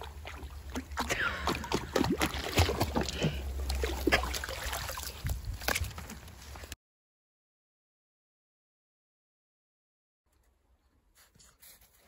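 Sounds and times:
water splashing and sloshing: 0.0s - 6.8s.

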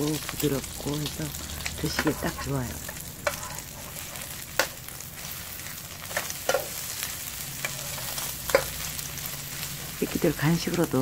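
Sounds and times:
dumplings sizzling in oil: 0.0s - 11.0s
metal spatula scraping pan: 1.6s - 4.8s, 7.6s - 8.8s.

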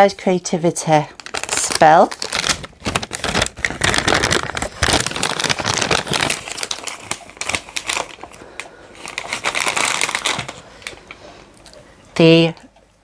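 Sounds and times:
paper bag crinkling: 1.2s - 11.2s.

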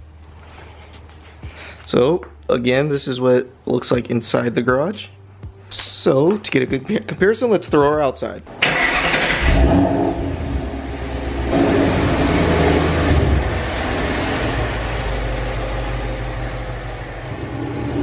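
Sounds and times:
car engine running: 8.6s - 18.0s.

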